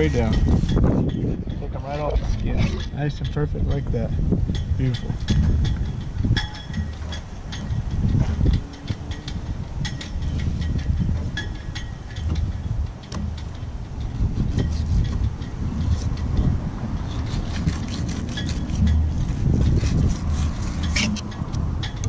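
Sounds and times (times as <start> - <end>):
wind buffeting microphone: 0.0 - 22.0
knife clicking and scraping: 14.4 - 22.0.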